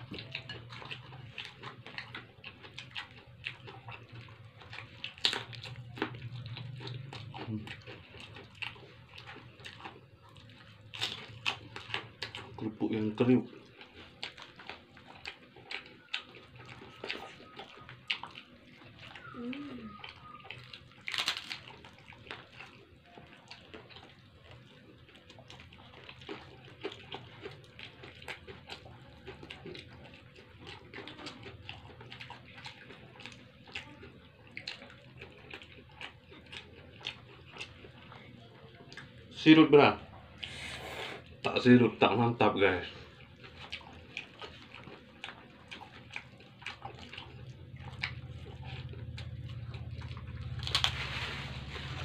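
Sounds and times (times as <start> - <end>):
people chewing: 0.0 - 52.0
paper wrapper crackles: 50.6 - 52.0.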